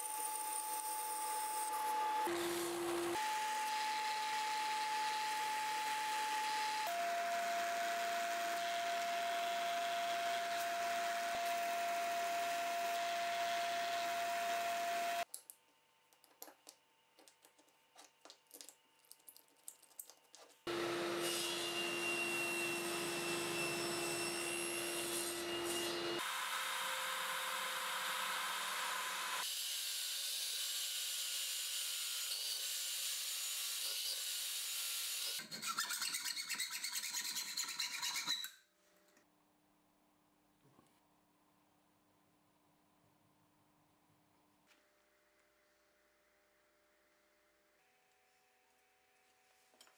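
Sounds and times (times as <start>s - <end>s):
table saw cutting: 0.0s - 15.2s, 20.7s - 38.5s.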